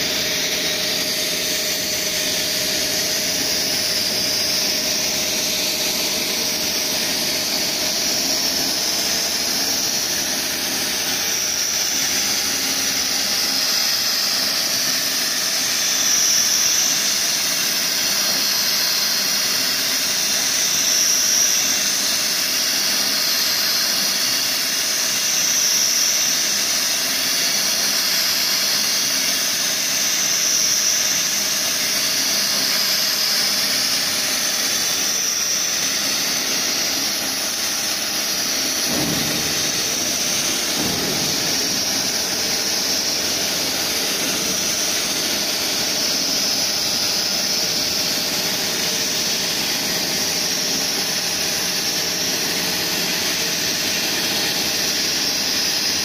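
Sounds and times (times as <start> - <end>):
milling machine cutting hiss: 0.0 - 56.0
spindle running: 29.6 - 50.8.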